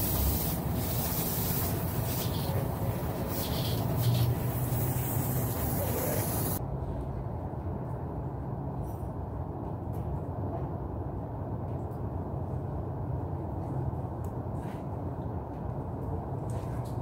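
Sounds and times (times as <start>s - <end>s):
airbrush air hiss: 0.0s - 6.6s.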